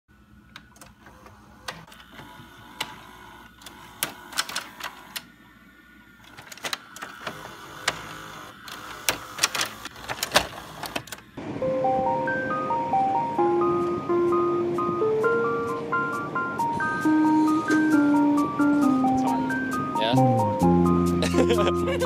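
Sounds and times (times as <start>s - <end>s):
tape deck mechanism clicking: 0.5s - 5.3s, 6.2s - 11.3s.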